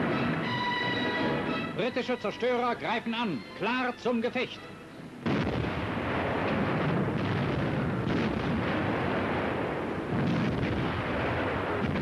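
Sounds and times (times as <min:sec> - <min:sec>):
naval gunfire: 0:05.2 - 0:12.0
shell bursts: 0:05.2 - 0:12.0.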